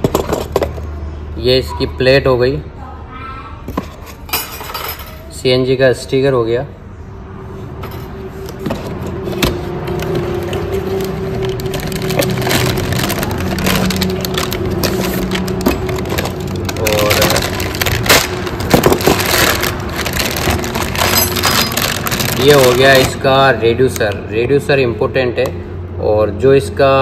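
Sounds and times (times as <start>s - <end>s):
plastic bag crinkling: 9.9s - 23.2s.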